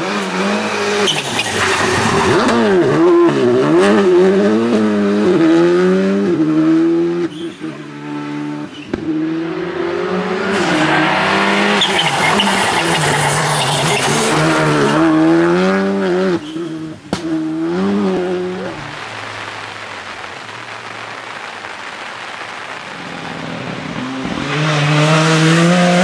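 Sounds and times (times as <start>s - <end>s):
tyres hissing on wet road: 0.0s - 2.7s, 9.4s - 15.2s, 18.4s - 26.0s
rally car engine revving: 0.0s - 19.5s, 23.0s - 26.0s.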